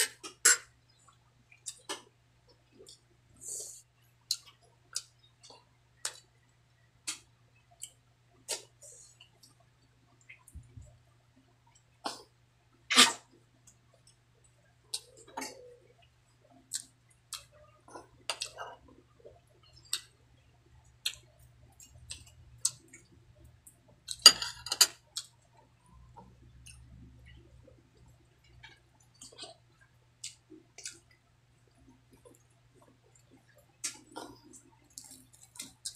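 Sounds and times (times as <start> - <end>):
chewing with wet mouth clicks: 1.0 - 3.1, 4.3 - 6.4, 13.7 - 24.2, 25.0 - 35.9.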